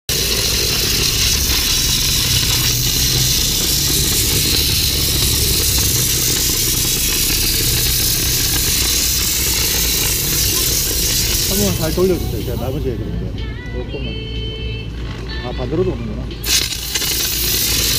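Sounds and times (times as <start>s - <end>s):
steam cleaner jet hissing: 0.1s - 12.9s, 16.4s - 17.9s
low engine drone: 0.1s - 17.9s.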